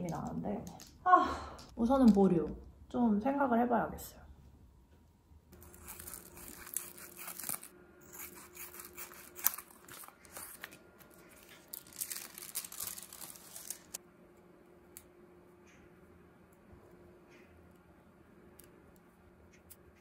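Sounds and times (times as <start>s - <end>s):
plastic sleeves rustling: 5.6s - 7.7s, 8.7s - 14.0s.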